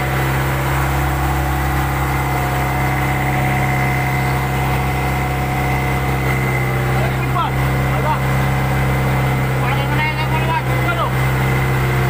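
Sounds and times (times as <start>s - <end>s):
boat engine droning: 0.0s - 12.0s
thin steady whine: 0.0s - 12.0s.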